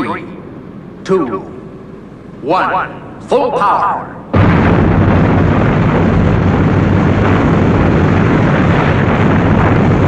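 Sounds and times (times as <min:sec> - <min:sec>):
rocket engines roaring: 0:00.0 - 0:10.0.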